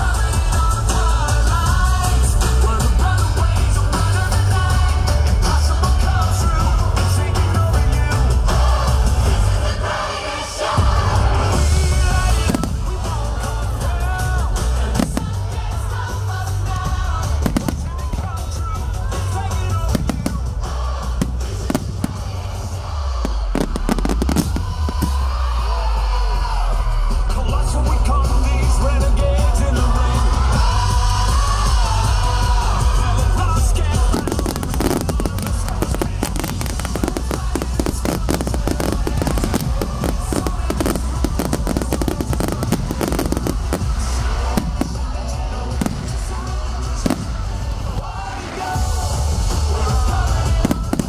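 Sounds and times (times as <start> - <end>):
loud music with heavy bass: 0.0 - 51.0
fireworks bangs: 11.4 - 13.5, 14.9 - 15.9, 17.1 - 25.6, 33.9 - 48.7, 50.3 - 51.0.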